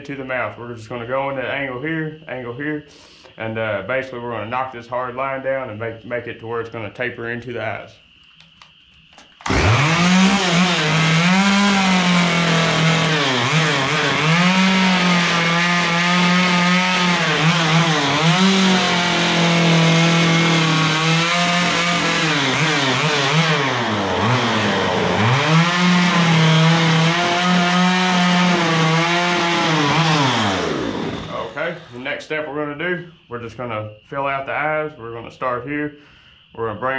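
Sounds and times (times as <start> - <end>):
chainsaw cutting wood: 9.4 - 32.1.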